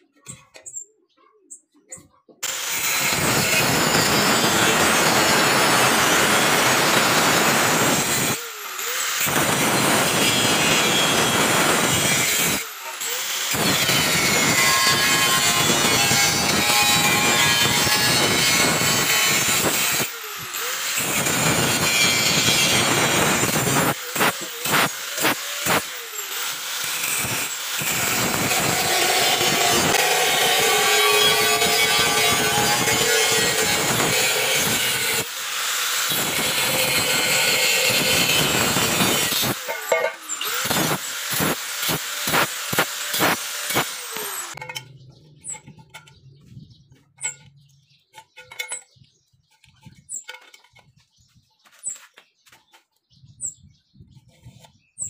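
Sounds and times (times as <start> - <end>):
angle grinder cutting steel: 2.4 - 46.2.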